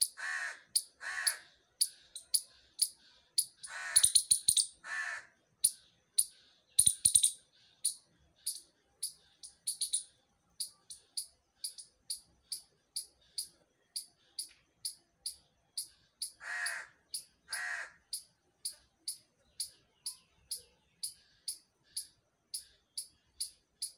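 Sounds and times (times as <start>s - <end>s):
crow cawing: 0.0s - 1.6s, 3.6s - 4.2s, 4.8s - 5.4s, 16.3s - 18.2s
squirrel alarm chirps: 0.0s - 23.9s.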